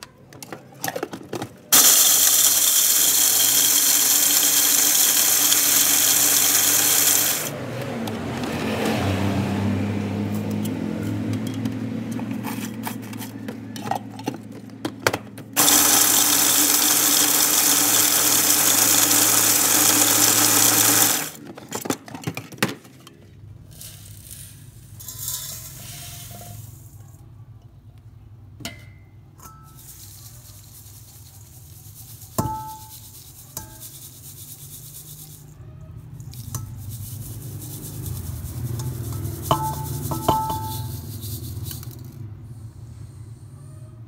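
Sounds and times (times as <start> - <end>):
electric food chopper grinding: 1.8 - 7.5, 15.6 - 21.4
crumbs rattling in metal sieve: 1.8 - 7.6, 15.6 - 21.4, 23.6 - 27.0, 29.7 - 35.6, 36.2 - 42.2.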